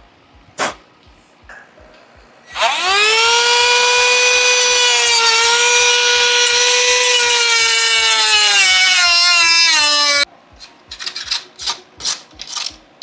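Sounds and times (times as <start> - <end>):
electric power tool whining: 2.5 - 10.3.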